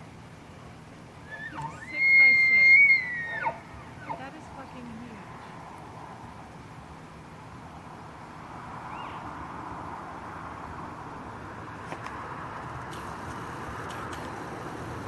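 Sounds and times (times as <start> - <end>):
distant road traffic: 0.0 - 15.0
faint chirp: 8.9 - 9.2.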